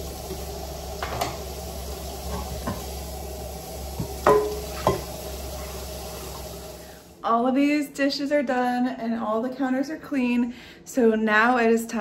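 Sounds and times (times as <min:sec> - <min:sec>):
running water hiss: 0:00.0 - 0:07.2
metal pan clanking against dishes: 0:04.2 - 0:05.1.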